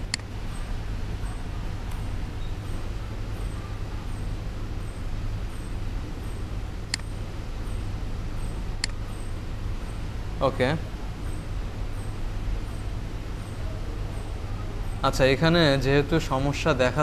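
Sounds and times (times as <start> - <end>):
computer mouse clicks: 8.8 - 9.0.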